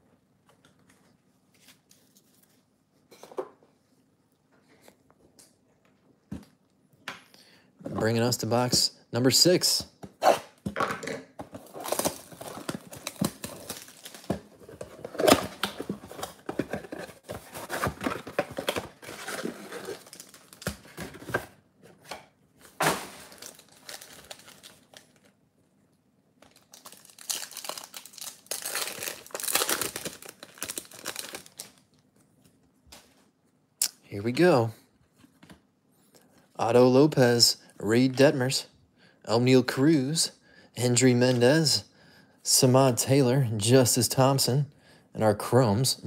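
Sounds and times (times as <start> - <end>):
foil card packs rustling: 11.4 - 21.6, 22.6 - 25.3, 26.4 - 31.8
foil pack tearing open: 11.6 - 14.3, 23.0 - 25.2, 26.5 - 31.8.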